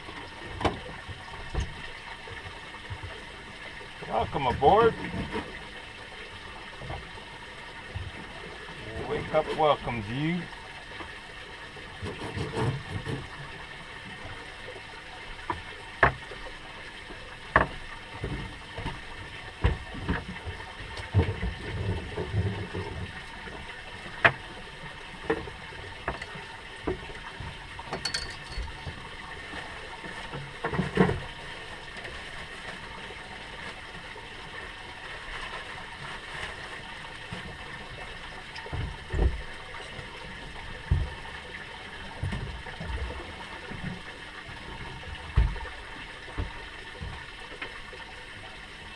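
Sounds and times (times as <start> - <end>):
water sloshing around a boat: 0.0 - 48.9
knocks and clunks on deck: 15.5 - 16.2, 17.5 - 19.0, 19.6 - 23.2, 38.7 - 39.5, 45.3 - 45.6.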